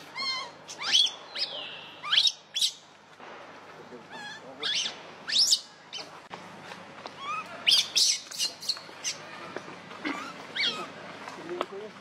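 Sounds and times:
baby monkey squealing: 0.0s - 2.8s, 4.1s - 6.0s, 7.2s - 9.4s, 10.0s - 10.9s.

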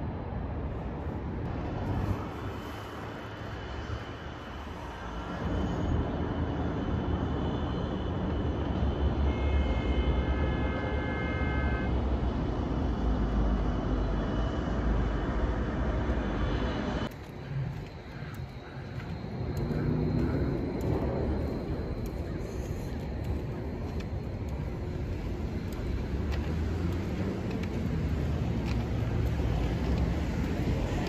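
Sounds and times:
distant traffic rumble: 11.6s - 31.0s.

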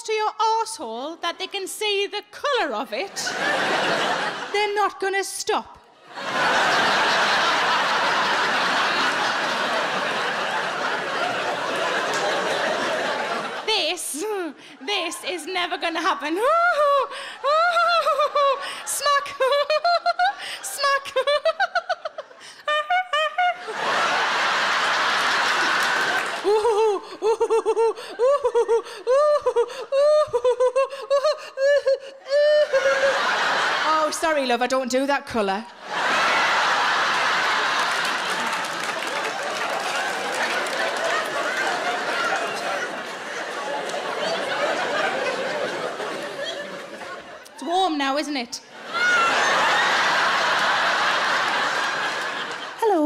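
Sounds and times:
audience laughing: 3.0s - 4.9s, 6.0s - 34.6s, 35.8s - 53.0s
woman squealing: 28.2s - 33.1s.

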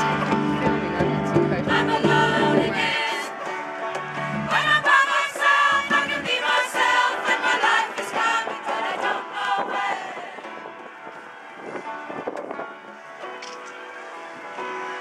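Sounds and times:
choir singing: 1.5s - 11.3s.

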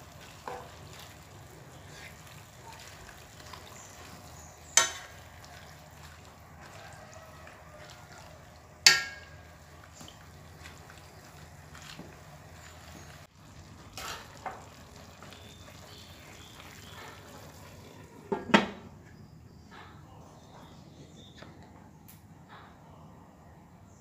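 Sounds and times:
ladle clinking on wok: 4.6s - 5.7s, 8.8s - 9.6s.

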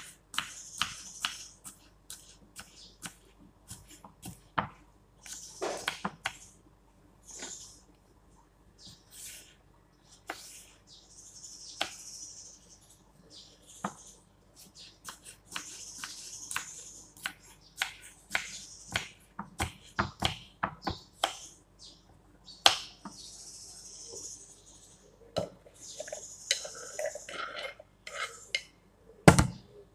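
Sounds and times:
knife chopping on wooden board: 0.3s - 6.4s, 15.0s - 21.4s.

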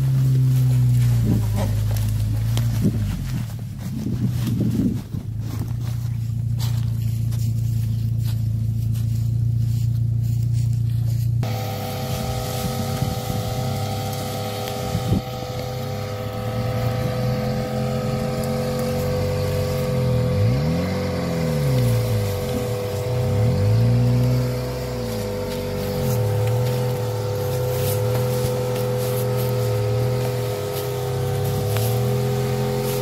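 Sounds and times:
car engine revving: 0.0s - 33.0s
droning music: 11.4s - 33.0s.

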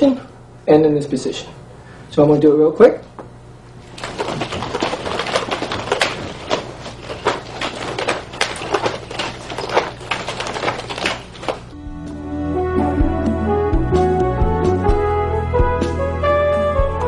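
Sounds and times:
nunchaku chain rattling: 3.9s - 11.7s.

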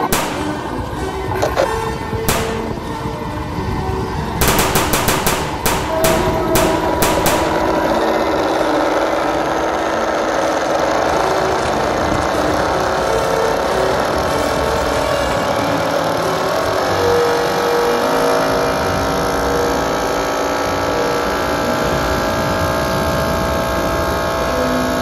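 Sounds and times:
machine-gun fire: 0.0s - 1.0s, 2.3s - 3.0s, 4.4s - 8.6s
steady engine drone: 0.0s - 25.0s.

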